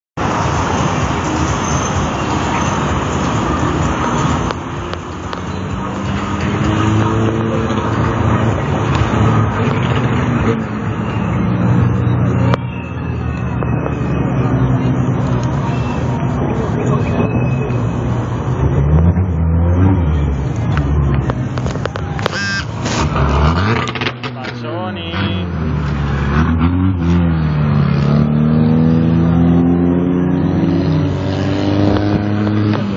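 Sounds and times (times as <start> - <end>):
road traffic engine hum: 0.2 - 32.9.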